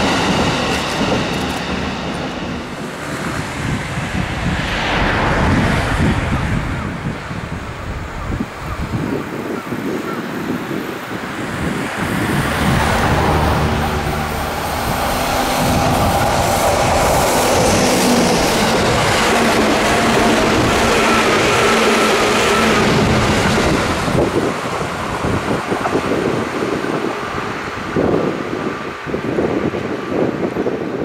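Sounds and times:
approaching train hum: 0:00.0 - 0:09.0, 0:10.6 - 0:30.7
road traffic rumble: 0:10.7 - 0:27.0.

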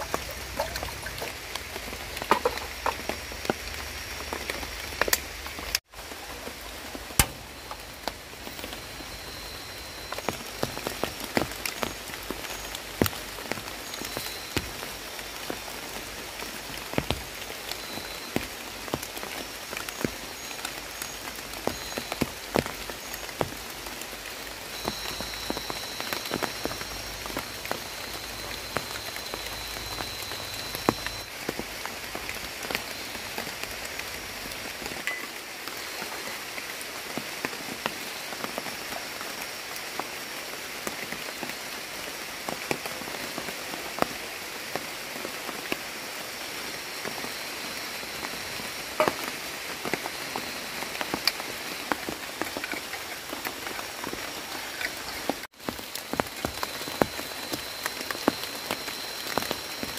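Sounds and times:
drips tapping: 0:00.0 - 0:03.6
light rain on tarp and leaves: 0:00.0 - 0:59.9.

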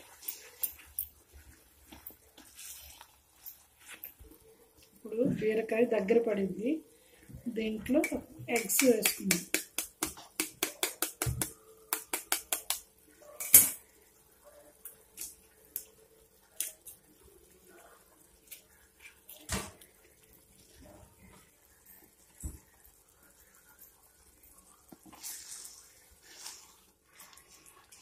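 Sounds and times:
curry simmering: 0:00.0 - 0:28.0
eggs tapped on metal pan rim: 0:07.9 - 0:12.8.

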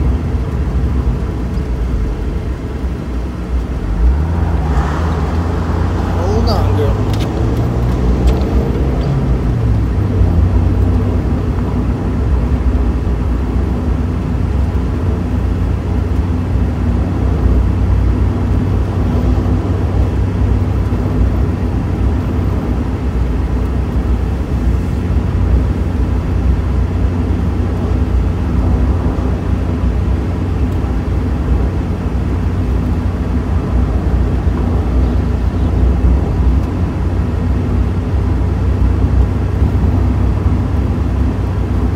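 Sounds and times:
car engine running: 0:00.0 - 0:41.9
road noise: 0:00.0 - 0:41.9
rising tone: 0:03.8 - 0:10.2.

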